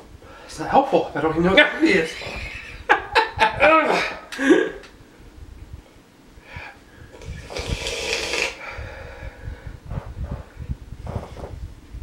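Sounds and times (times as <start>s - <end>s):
man breathing heavily: 6.4s - 11.4s
low irregular rumbling bumps: 8.9s - 12.0s.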